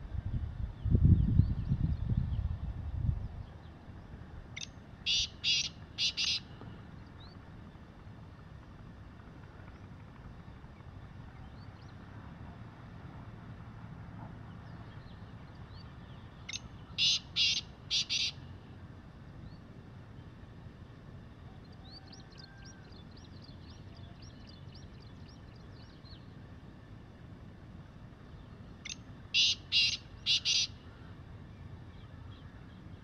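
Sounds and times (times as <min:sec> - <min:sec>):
faint high bird chirps: 0:04.6 - 0:06.6, 0:15.7 - 0:18.4, 0:28.4 - 0:31.1
bird calling harsh notes: 0:05.0 - 0:06.6, 0:16.5 - 0:18.5, 0:28.8 - 0:31.1.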